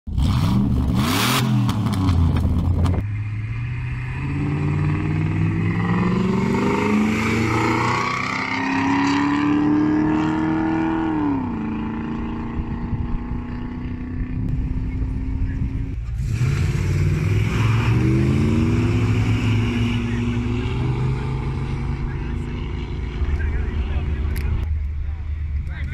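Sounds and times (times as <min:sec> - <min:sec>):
engine revving burst: 0:00.1 - 0:02.4, 0:03.7 - 0:12.7, 0:15.5 - 0:24.6
car engines at full throttle: 0:00.1 - 0:25.9.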